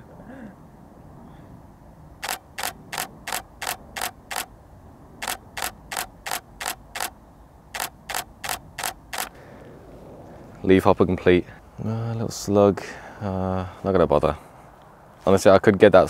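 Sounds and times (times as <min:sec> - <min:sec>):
camera shutter bursts: 0:02.2 - 0:04.5, 0:05.2 - 0:09.4.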